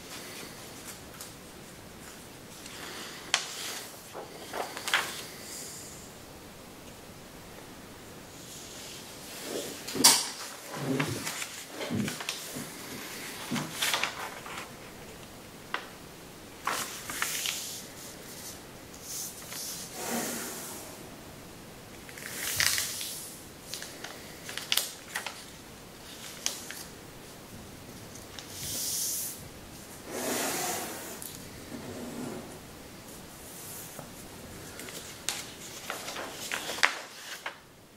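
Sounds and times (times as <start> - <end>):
paper rustling and crinkling: 0.0 - 5.4, 9.2 - 15.9, 16.6 - 19.9, 22.0 - 27.0, 33.1 - 37.7
paper crackle: 0.1 - 5.4, 10.4 - 15.9, 16.6 - 18.6, 22.0 - 27.0, 34.6 - 37.7.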